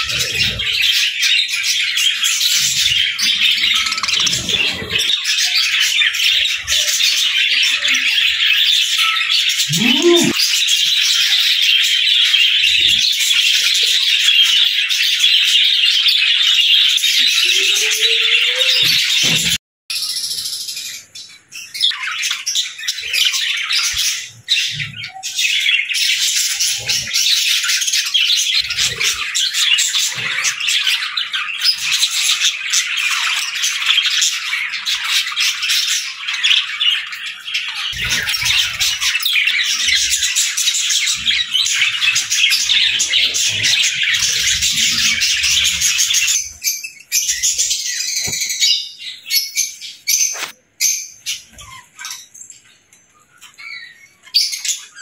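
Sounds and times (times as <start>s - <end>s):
budgerigars chattering: 22.8s - 52.3s.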